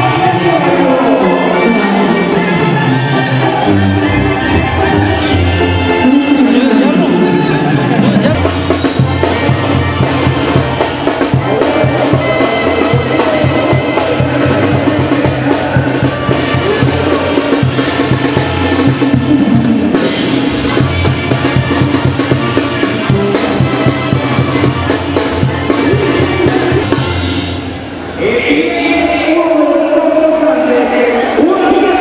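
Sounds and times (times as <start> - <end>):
music with drums and bass: 8.0 - 27.7.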